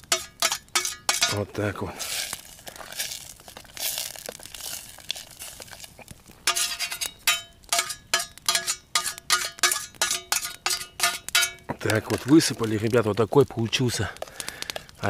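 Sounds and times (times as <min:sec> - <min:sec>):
metal spoon scraping cookware: 0:00.1 - 0:01.4, 0:06.5 - 0:11.6.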